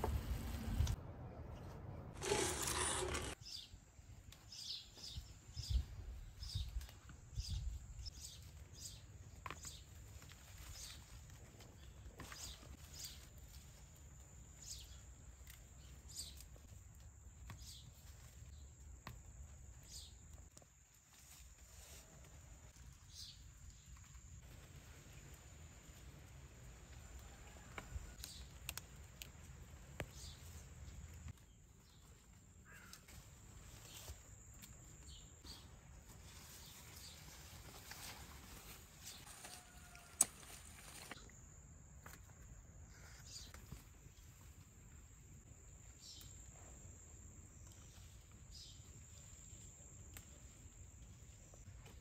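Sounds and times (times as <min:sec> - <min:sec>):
plant leaves rustling: 0:02.2 - 0:03.4, 0:28.3 - 0:41.2.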